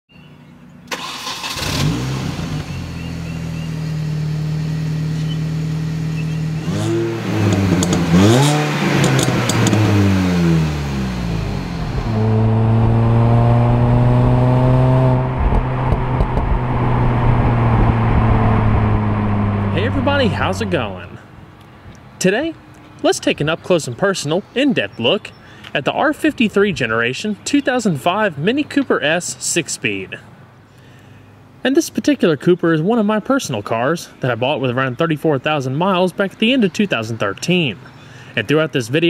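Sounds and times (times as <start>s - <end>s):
car engine running and revving: 1.6s - 21.2s.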